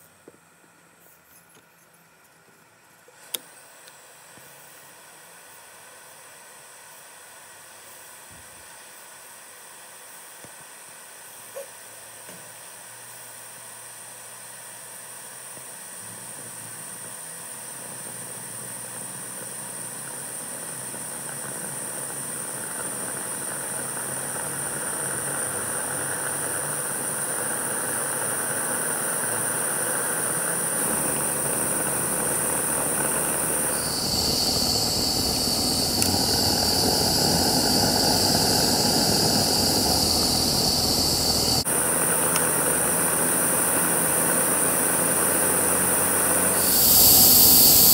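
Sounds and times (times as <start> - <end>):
steam hissing: 16.2 - 47.9
deep steam rush: 18.4 - 47.9
high steady whistling tone: 18.7 - 41.7, 42.4 - 47.9.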